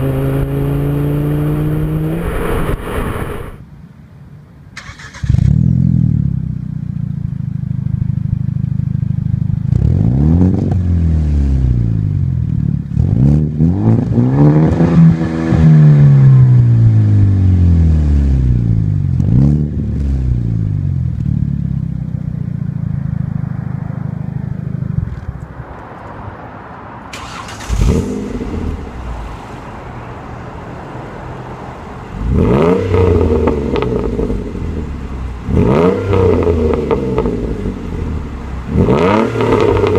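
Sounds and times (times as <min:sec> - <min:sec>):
car engine idling and revving: 0:00.0 - 0:39.9
car engine revved in sharp blips: 0:04.8 - 0:06.0, 0:27.1 - 0:29.4, 0:32.1 - 0:39.9.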